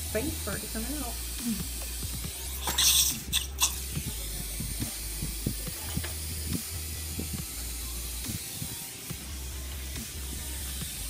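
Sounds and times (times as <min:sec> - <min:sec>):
surgical suction hissing: 0:02.4 - 0:03.9.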